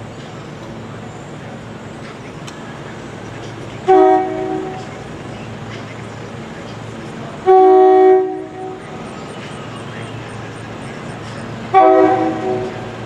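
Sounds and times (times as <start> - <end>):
train horn blast: 3.8 - 4.9, 7.4 - 8.9, 11.7 - 13.0.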